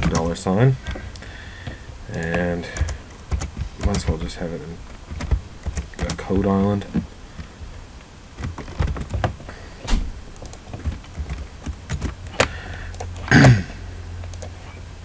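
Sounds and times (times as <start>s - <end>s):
keyboard and mouse clicks: 0.0s - 4.2s, 4.9s - 7.0s, 8.4s - 13.4s, 14.2s - 14.8s.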